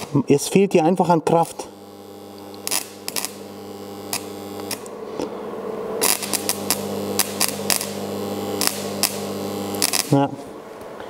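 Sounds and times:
welding arc crackling and popping: 0.0s - 0.2s, 1.3s - 4.9s, 6.0s - 10.2s
welder humming: 1.4s - 5.0s, 6.0s - 10.2s.

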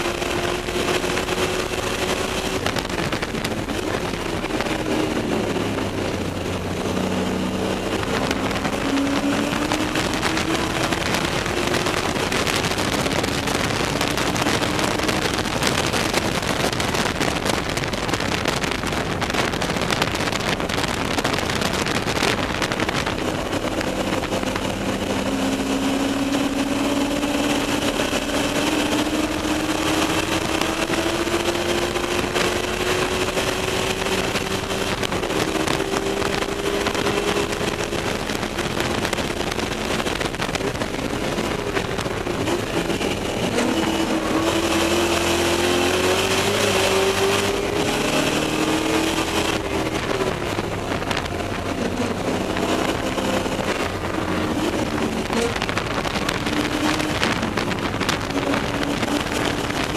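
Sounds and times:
race car engine revving: 0.0s - 59.9s
wind and road noise: 0.0s - 59.9s.

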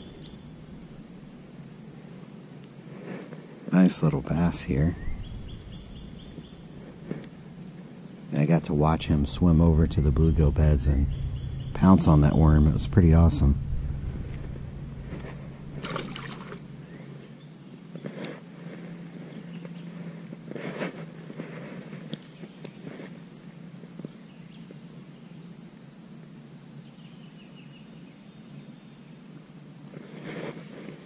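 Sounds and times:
high-pitched insect drone: 0.0s - 1.4s, 3.8s - 17.1s.

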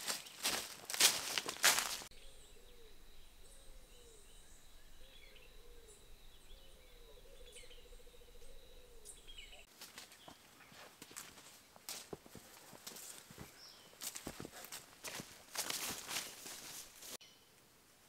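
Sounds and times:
footsteps crunching through leaves: 0.0s - 2.2s, 9.6s - 17.2s
high chirps: 2.1s - 9.7s
high-pitched whine: 2.1s - 9.7s.

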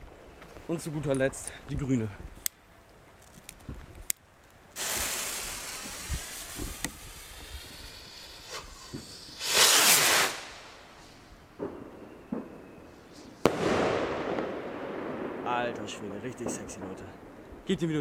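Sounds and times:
firework rocket hissing: 4.8s - 11.3s
rushing hiss: 4.8s - 11.3s.

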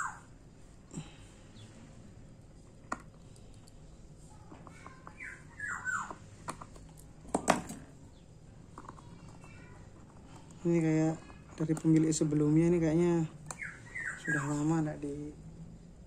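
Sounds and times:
bird chirping: 4.9s - 6.2s, 7.9s - 8.4s, 13.0s - 15.2s.

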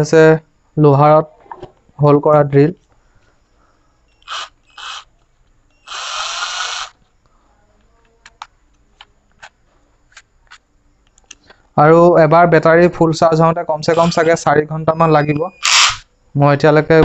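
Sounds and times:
cordless drill motor spinning: 4.2s - 5.1s, 5.8s - 7.0s, 13.9s - 14.4s.

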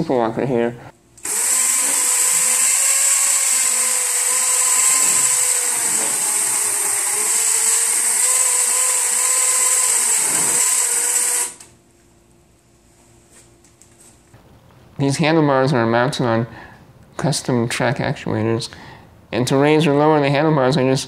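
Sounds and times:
electric motor whine: 1.2s - 11.7s.

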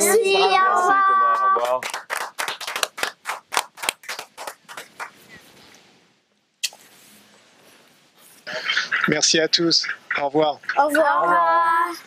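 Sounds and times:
people clapping: 1.2s - 5.3s
faint hiss: 3.8s - 12.0s.

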